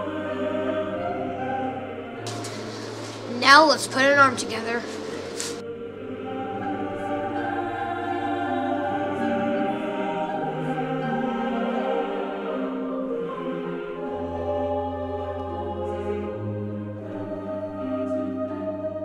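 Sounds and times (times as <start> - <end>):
slow music of held chords: 0.0 - 19.0.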